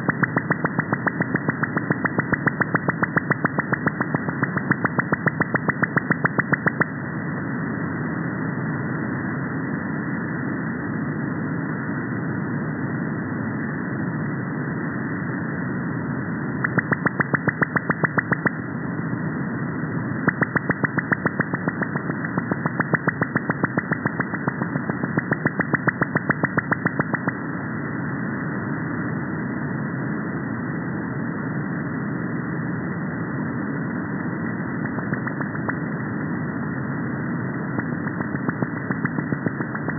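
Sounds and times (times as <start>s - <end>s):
radar pulse clicks: 0.0s - 7.0s, 16.6s - 18.6s, 20.2s - 27.4s, 34.8s - 35.8s, 37.7s - 39.9s.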